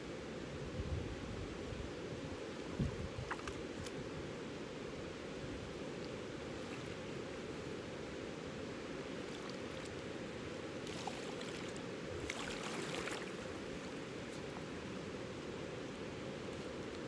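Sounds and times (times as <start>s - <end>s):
river water rushing: 6.2s - 16.5s
person wading through water: 10.8s - 13.6s.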